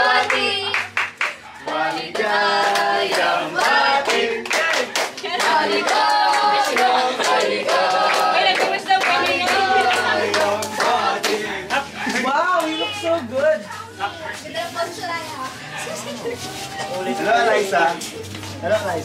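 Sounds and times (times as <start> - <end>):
group singing together: 0.0 - 12.3
hands clapping along: 0.1 - 12.9.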